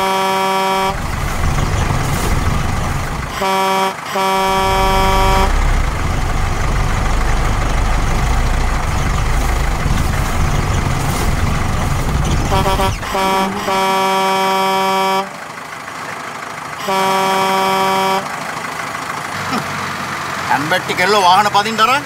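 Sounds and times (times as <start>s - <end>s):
bus horn honking: 0.0s - 15.5s, 16.8s - 18.5s
bus engine running: 0.0s - 22.0s.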